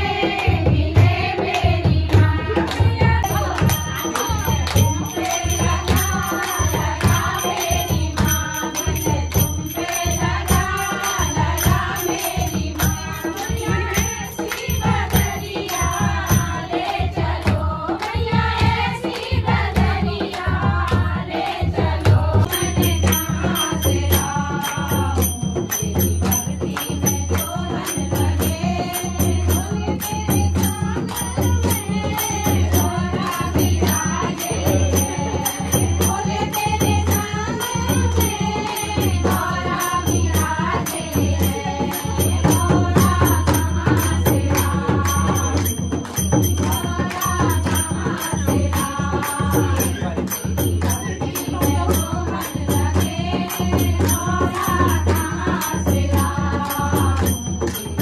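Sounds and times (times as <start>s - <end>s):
hand drum beat: 0.0s - 58.0s
women singing together: 0.0s - 58.0s
hand claps: 1.5s - 11.1s, 41.9s - 52.1s
small hand cymbals jingling: 3.2s - 16.7s, 22.4s - 58.0s.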